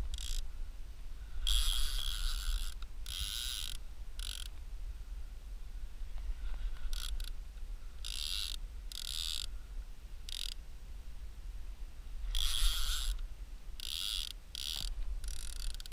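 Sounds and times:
fishing reel gears whirring: 0.0 - 0.5, 1.4 - 4.5, 6.8 - 7.4, 8.0 - 9.5, 10.3 - 10.6, 12.3 - 13.2, 13.8 - 15.9.

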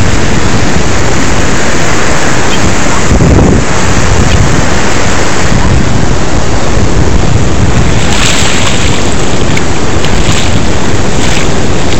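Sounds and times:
surf washing: 0.0 - 11.9
wave sliding up sand: 0.0 - 11.9
wind buffeting microphone: 0.0 - 11.9.

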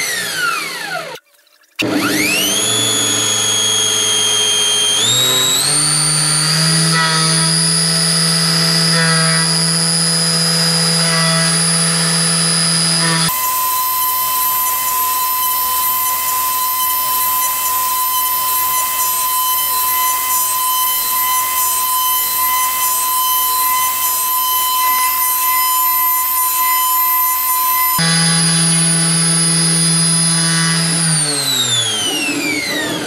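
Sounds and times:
milling machine spindle whine: 1.8 - 33.0
hissy machine sound with tone: 13.3 - 28.0.

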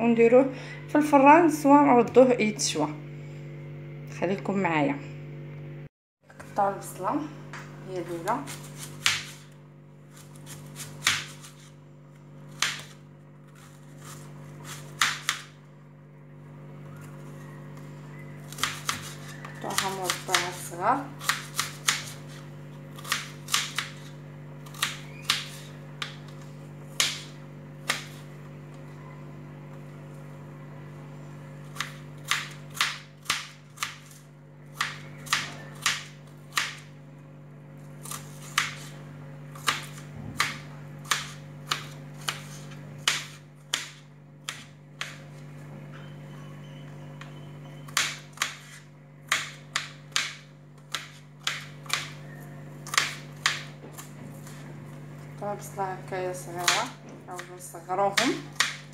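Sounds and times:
low hum: 0.0 - 8.7, 22.1 - 33.2.

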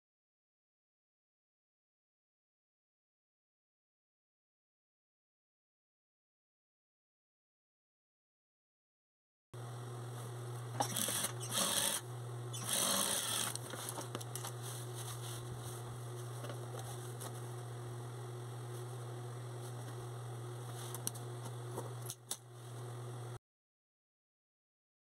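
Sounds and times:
sewing machine running: 10.8 - 12.0, 12.6 - 14.4
rustling cloth: 13.7 - 17.5.

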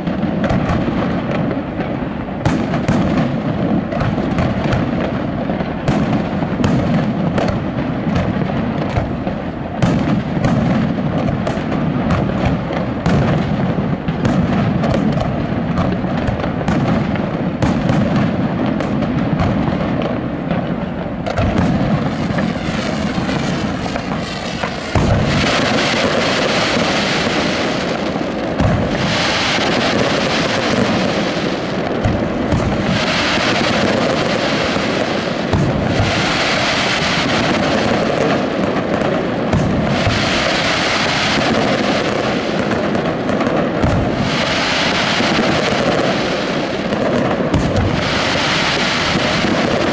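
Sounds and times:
heavy fireworks booms: 0.0 - 49.9
hiss of crackling stars: 21.0 - 49.9
fireworks shell bursts: 21.3 - 27.8.

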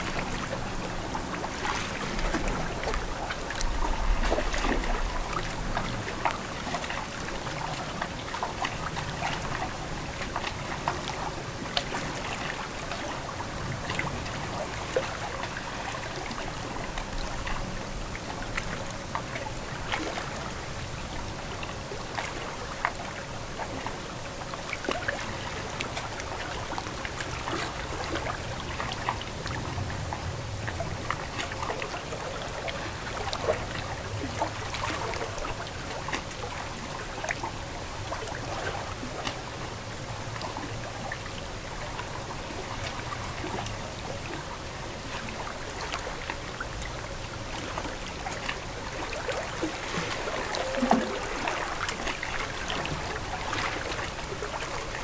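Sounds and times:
water lapping at shore: 0.0 - 55.0
loud water splash: 49.2 - 54.0.

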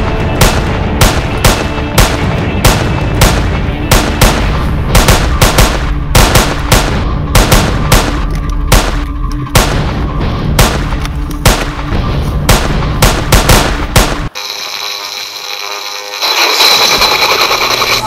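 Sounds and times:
gunshots: 0.0 - 14.4
background music: 0.0 - 18.0.

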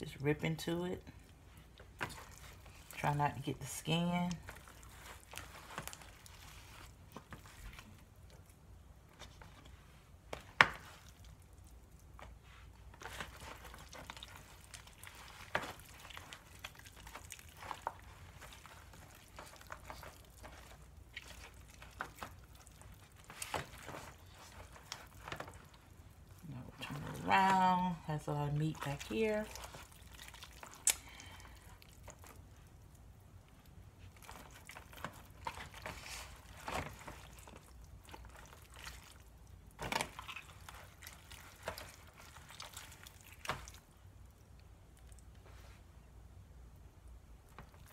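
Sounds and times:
meat squishing and tearing: 1.2 - 3.1, 4.3 - 45.4, 47.1 - 47.9
plastic tray crinkling: 13.0 - 31.0, 34.0 - 43.9.

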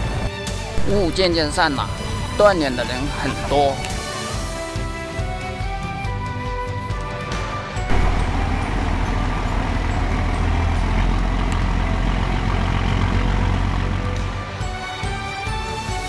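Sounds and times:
background music: 0.0 - 16.0
low rumble with hiss: 7.9 - 14.3.

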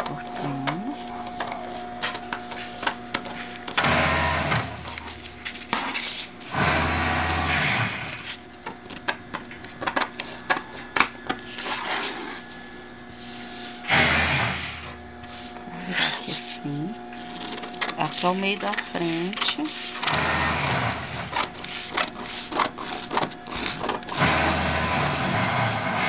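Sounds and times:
scissors snipping paper: 17.2 - 20.1, 21.2 - 24.2
paper sheet rustling: 21.2 - 24.2.

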